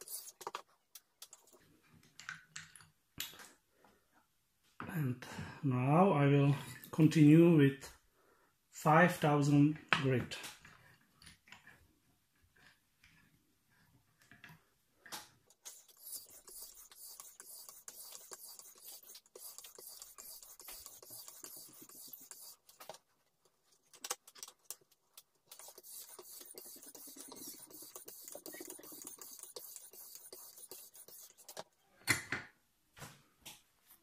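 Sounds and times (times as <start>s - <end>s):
sharpening stone scraping knife: 15.6s - 22.8s, 25.5s - 31.6s.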